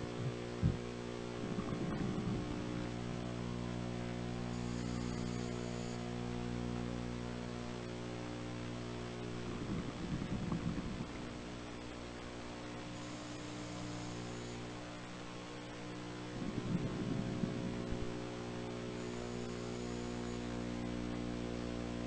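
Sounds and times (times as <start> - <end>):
exhaled bubbles rumbling: 0.0 - 3.9, 9.1 - 12.5, 16.2 - 18.4
steady low hum: 0.0 - 22.0
regulator inhalation hiss: 18.8 - 20.7.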